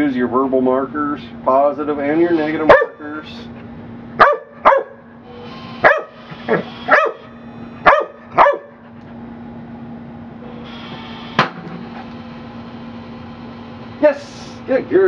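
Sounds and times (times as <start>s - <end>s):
dog barking: 2.7s - 3.0s, 4.2s - 5.0s, 5.8s - 8.8s.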